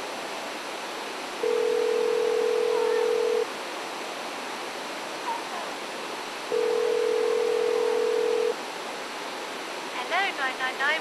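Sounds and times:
background hiss: 0.0 - 11.0
telephone ringing tone: 1.4 - 3.4, 6.5 - 8.6.

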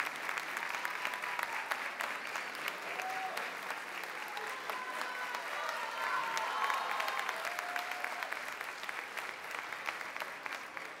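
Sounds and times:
audience applauding: 0.0 - 11.0
voices cheering: 2.8 - 8.5.

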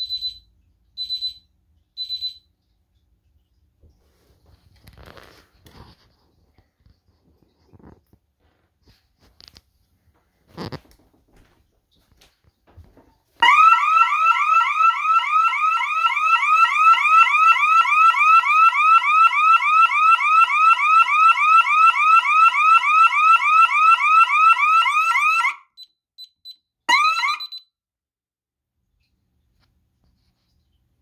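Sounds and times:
alarm siren yelping: 13.4 - 25.8, 26.9 - 27.6.

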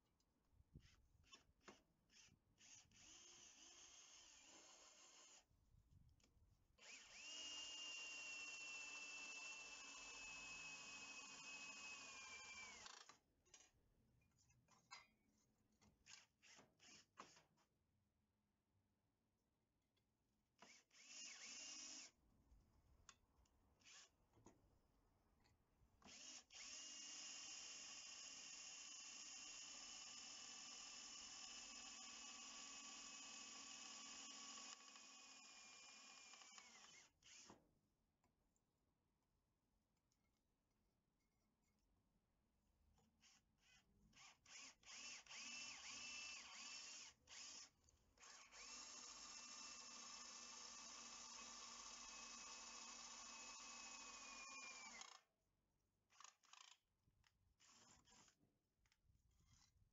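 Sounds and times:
cordless drill whining: 0.8 - 5.5, 6.8 - 13.7, 16.0 - 17.4, 20.6 - 22.2, 23.8 - 24.2, 26.0 - 37.6, 43.2 - 55.2, 57.6 - 58.4.

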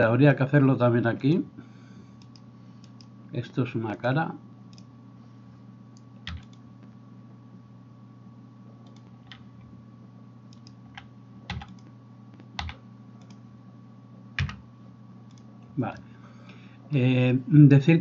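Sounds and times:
steady low hum: 0.0 - 18.0
keyboard keystrokes: 6.3 - 6.6, 10.5 - 13.4, 14.4 - 14.6.

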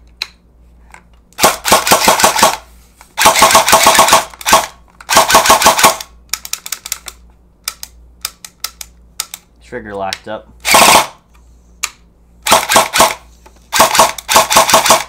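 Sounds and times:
airsoft gun firing: 1.4 - 2.6, 3.2 - 6.1, 10.6 - 11.2, 12.4 - 15.0.

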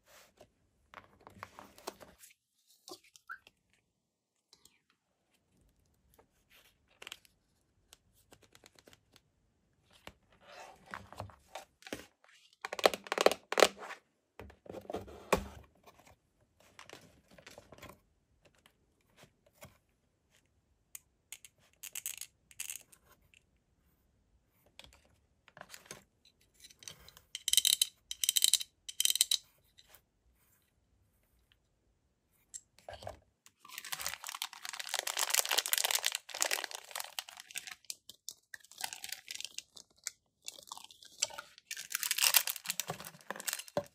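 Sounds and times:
plastic bag crinkling: 33.6 - 37.9.

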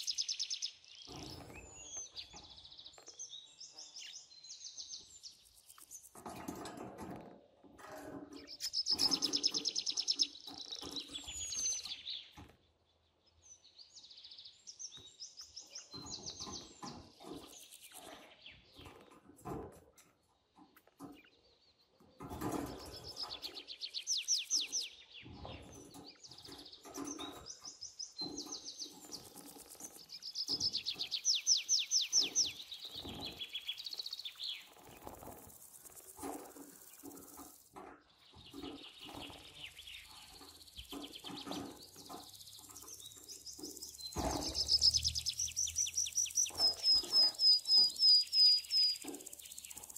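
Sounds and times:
wings flapping: 32.1 - 37.7
budgerigars chirping: 38.5 - 49.9.

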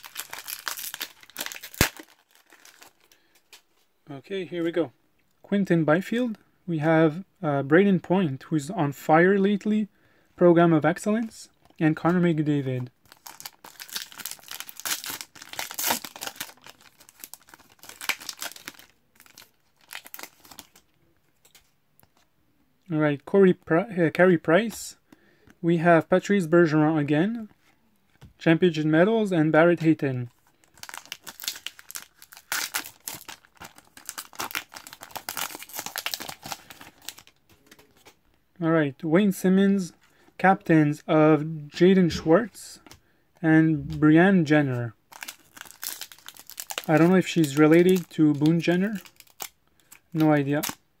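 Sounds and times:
foil wrapper tearing and crinkling: 0.0 - 3.2, 13.0 - 20.8, 30.6 - 37.3, 45.1 - 50.8.

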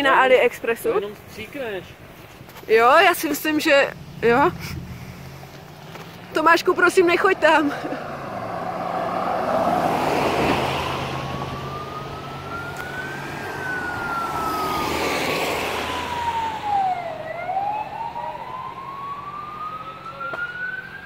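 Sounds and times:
road traffic noise: 0.0 - 21.0
pickup truck driving past: 3.8 - 19.7
siren wailing: 6.6 - 21.0.

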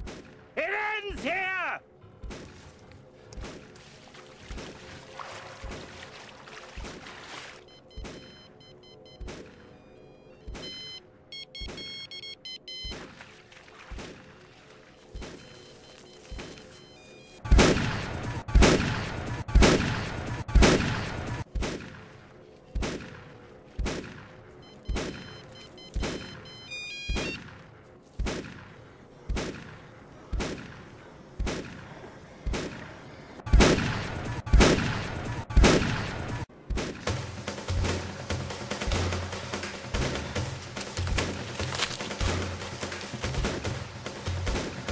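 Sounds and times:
shotgun blasts with echo: 0.0 - 1.4, 17.4 - 26.5, 27.1 - 39.3, 39.9 - 44.9.

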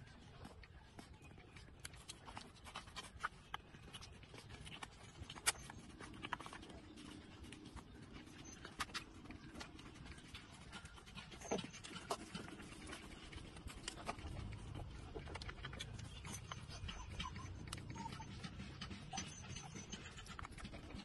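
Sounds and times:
puppies sucking clicks: 0.0 - 21.0
puppy squeak: 16.1 - 20.6.

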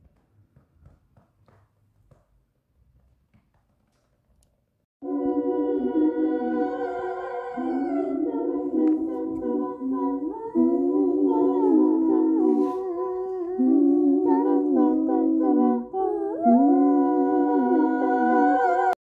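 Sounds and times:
woman humming a cappella: 5.1 - 19.0.

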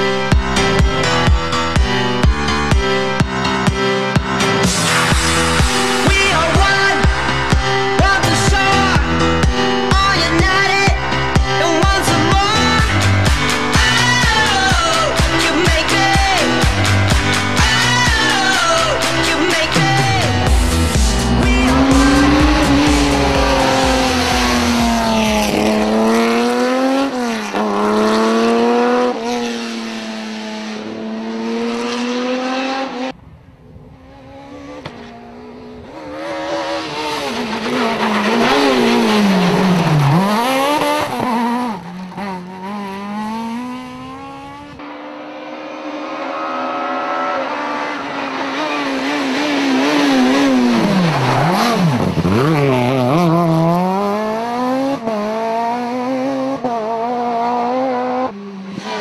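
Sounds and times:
rally car engines revving past: 18.5 - 59.0.

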